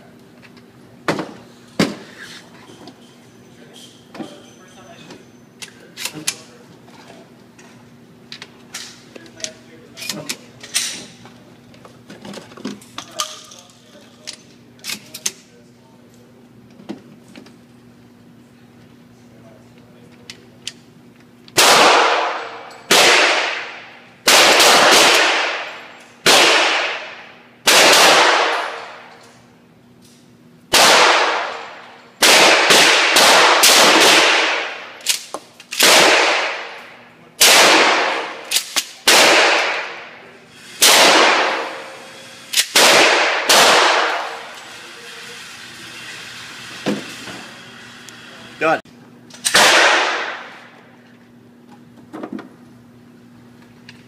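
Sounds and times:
shotgun shots echoing indoors: 21.6s - 29.3s, 30.7s - 44.6s, 49.4s - 50.8s.

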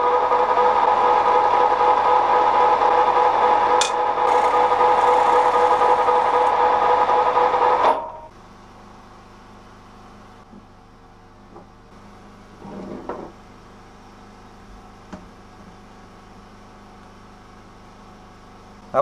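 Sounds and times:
lathe gear whine: 0.0s - 8.2s.

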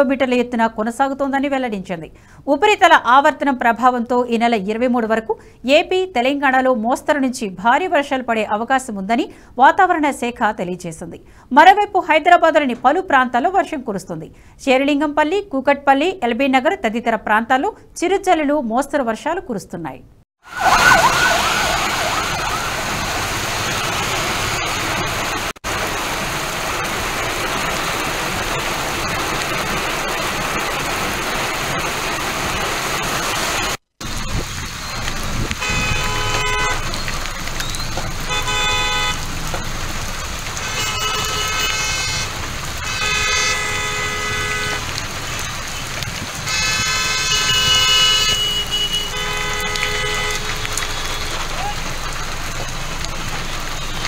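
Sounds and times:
heavy rain on street: 20.4s - 54.0s
road traffic: 20.4s - 54.0s
vehicle horns honking: 35.6s - 37.0s, 38.3s - 39.2s, 40.6s - 44.8s, 46.5s - 51.6s.

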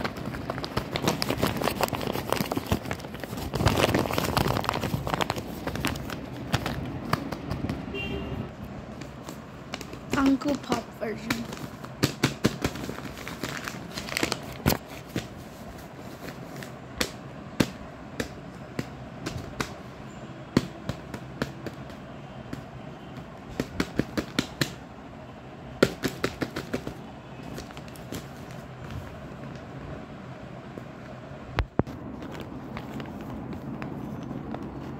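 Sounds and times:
plastic packaging crinkling: 0.0s - 7.6s, 11.4s - 16.8s.

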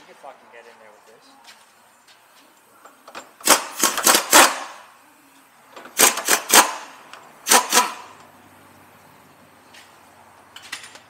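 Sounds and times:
power wrench rattling on bolts: 3.1s - 4.7s, 5.8s - 8.3s.

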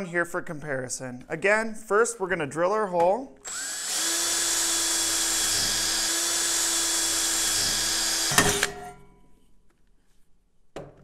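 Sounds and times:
cordless drill whining through metal: 3.4s - 8.8s
drill stopping with sharp clack: 3.5s - 8.9s.

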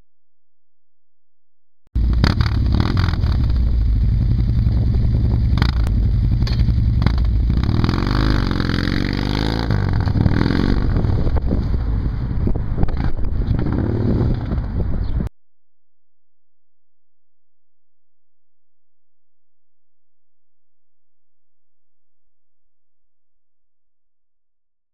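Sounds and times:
motorcycle engine idling and revving: 2.0s - 15.3s.

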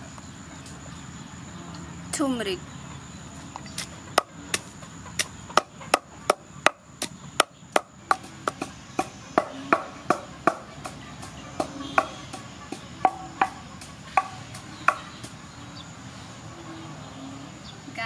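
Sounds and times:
wooden pestle pounding in mortar: 3.8s - 15.4s.

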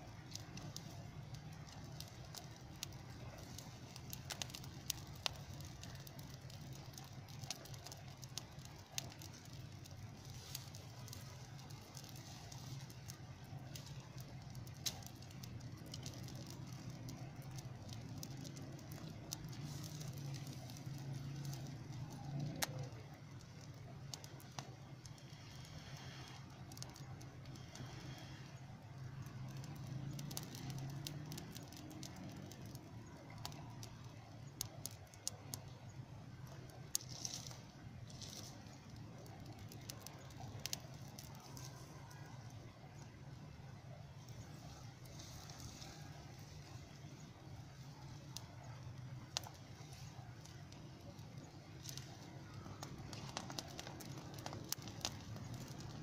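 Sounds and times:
steady low hum: 0.0s - 31.2s
fire pops and crackles: 0.0s - 56.0s
twigs and branches burning: 0.0s - 56.0s.

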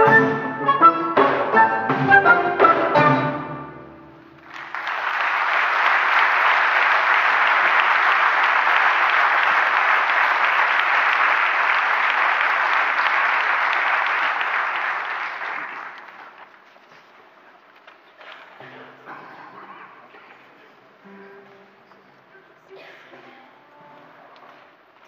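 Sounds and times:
audience applause: 4.4s - 16.6s.

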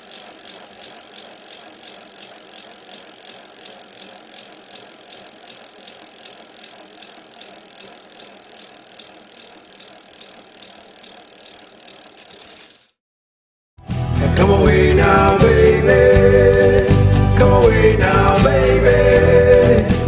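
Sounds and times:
rapid mechanical clicking: 0.0s - 13.0s.

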